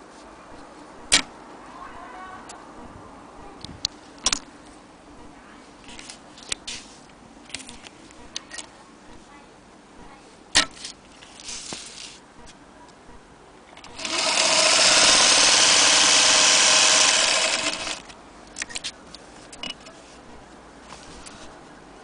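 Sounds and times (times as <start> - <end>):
sewing machine whirring: 13.8 - 18.1.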